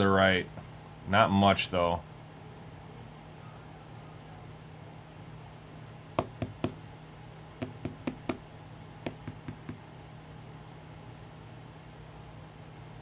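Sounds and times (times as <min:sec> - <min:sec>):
faint steady hum: 0:00.0 - 0:13.0
taps on plastic card holder: 0:06.2 - 0:06.8, 0:07.6 - 0:08.4, 0:09.1 - 0:09.8.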